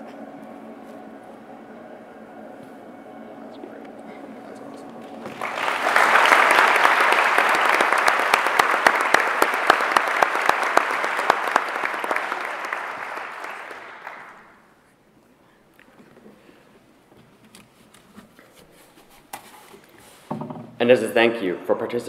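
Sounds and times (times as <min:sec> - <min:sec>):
audience applauding: 0:04.8 - 0:14.8.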